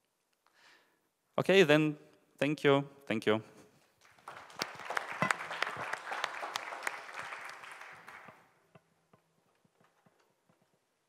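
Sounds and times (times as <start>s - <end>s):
audience applauding: 4.0s - 8.5s.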